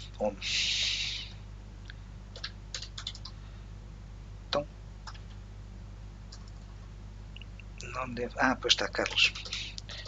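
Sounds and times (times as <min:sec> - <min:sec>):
faint steady hum: 0:00.0 - 0:10.0
keyboard keystrokes: 0:02.4 - 0:03.3.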